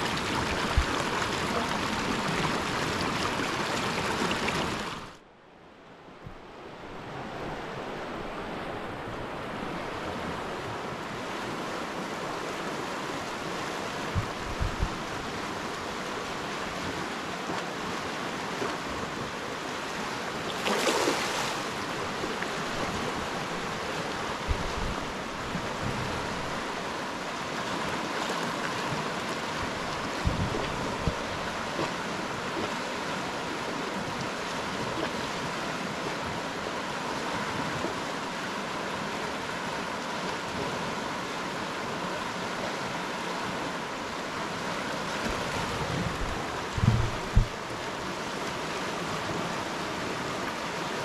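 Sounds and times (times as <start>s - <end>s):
river water rushing: 0.0s - 51.0s
short low knocks: 46.2s - 47.6s.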